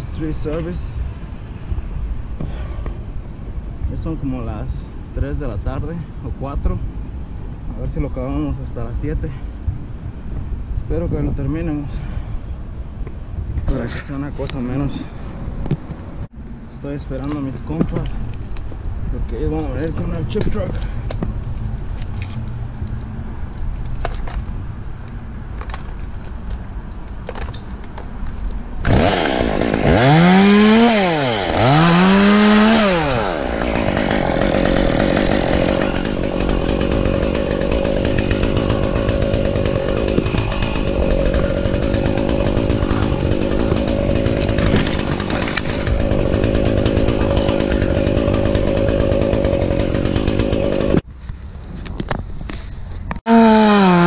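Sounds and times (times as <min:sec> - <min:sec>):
chainsaw revving: 0:28.8 - 0:51.0, 0:53.3 - 0:54.0.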